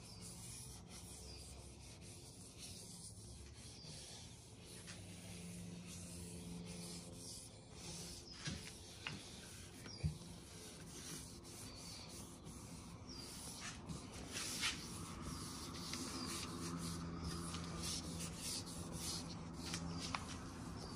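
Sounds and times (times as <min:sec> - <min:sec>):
gloved hand rubbing wood: 0:00.0 - 0:20.9.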